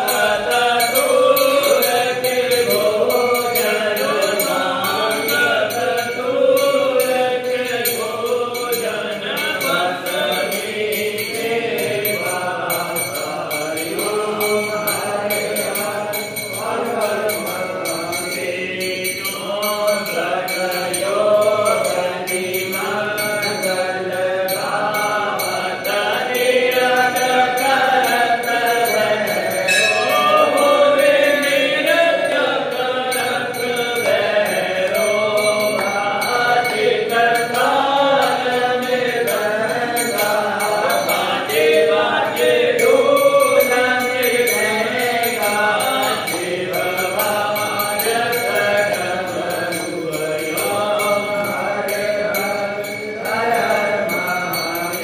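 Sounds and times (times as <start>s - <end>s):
brass hand bell ringing: 0.0s - 55.0s
person chanting mantras: 0.0s - 55.0s.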